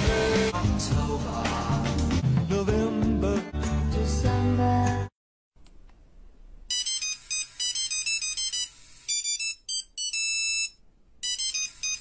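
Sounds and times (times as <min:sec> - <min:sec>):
electronic beeping ringtone melody: 0:06.7 - 0:12.0.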